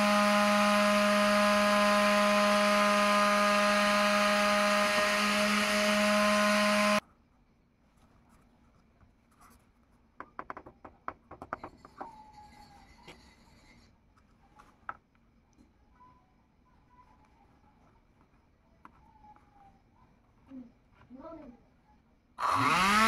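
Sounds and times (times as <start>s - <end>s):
small electric fan motor humming: 0.0s - 7.0s, 22.4s - 23.0s.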